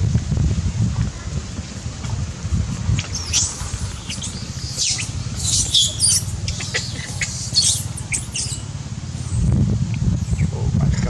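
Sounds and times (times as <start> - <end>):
steady low hum: 2.4 - 10.8
monkeys squeaking and squealing: 3.1 - 8.7, 10.2 - 10.5.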